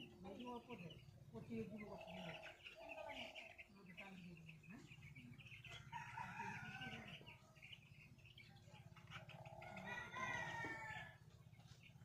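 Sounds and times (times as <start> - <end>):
chickens calling: 0.0 - 12.0
rooster crowing: 5.8 - 7.3, 9.6 - 11.2.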